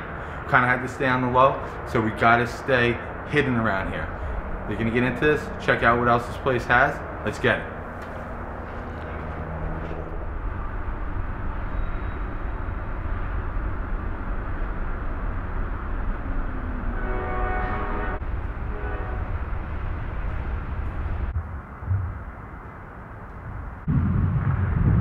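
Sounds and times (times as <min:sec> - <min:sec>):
steady rumbling: 0:00.0 - 0:25.0
horn blasts: 0:16.7 - 0:19.4.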